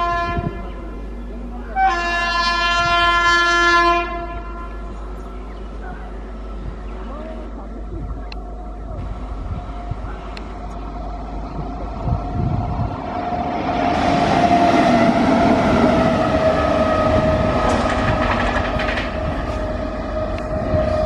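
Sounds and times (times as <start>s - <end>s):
locomotive whine: 0.0s - 21.0s
train wheels clattering over rails: 13.6s - 21.0s.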